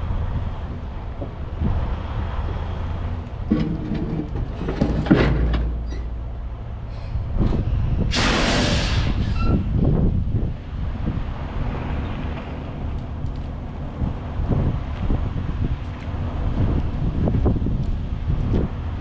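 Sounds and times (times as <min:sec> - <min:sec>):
diesel engine rumbling: 0:00.0 - 0:19.0
metallic clanks: 0:03.4 - 0:06.2
loud hiss: 0:08.1 - 0:09.4.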